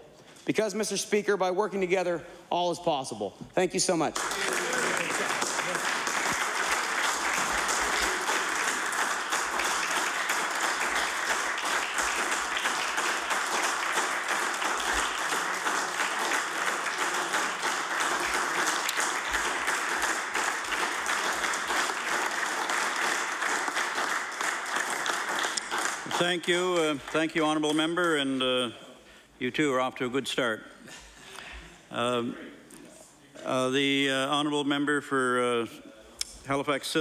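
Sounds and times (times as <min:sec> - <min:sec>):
applause: 0:04.0 - 0:28.6.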